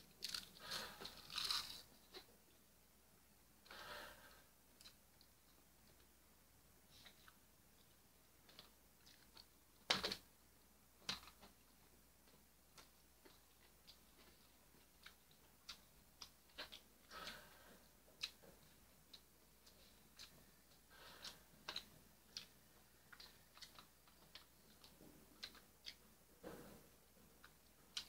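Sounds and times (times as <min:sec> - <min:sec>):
chewing: 0:13.3 - 0:26.1.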